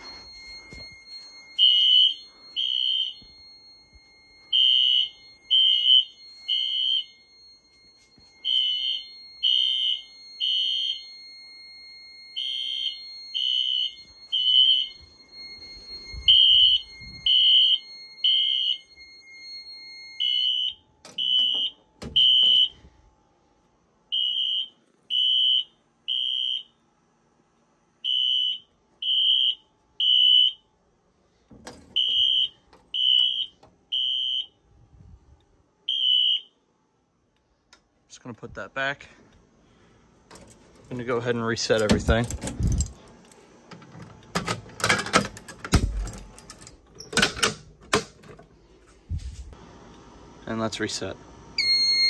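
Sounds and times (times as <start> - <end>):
steady high tone: 0.0 - 20.8
fire alarm horns beeping: 0.0 - 23.1, 24.1 - 27.0, 27.9 - 30.7, 31.3 - 36.7, 38.2 - 43.0, 50.6 - 52.0
knocks and handling sounds: 41.7 - 49.6.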